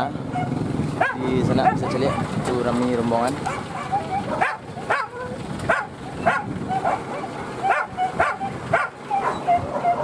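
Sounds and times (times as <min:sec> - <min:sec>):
dogs yelping: 0:00.3 - 0:02.4, 0:03.4 - 0:10.0
dogs whining: 0:03.5 - 0:10.0.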